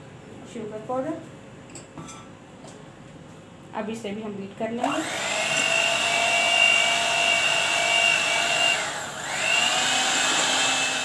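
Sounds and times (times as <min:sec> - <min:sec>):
electric hand mixer whining: 0:04.8 - 0:11.0.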